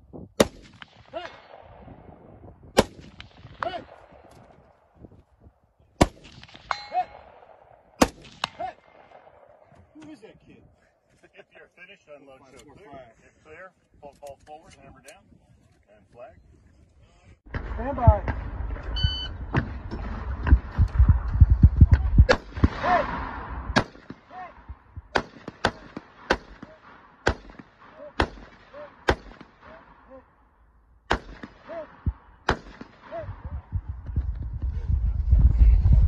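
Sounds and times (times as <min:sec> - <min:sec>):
gunshots with ringing: 0:00.4 - 0:04.3, 0:06.0 - 0:09.7, 0:25.1 - 0:30.1, 0:31.1 - 0:33.2.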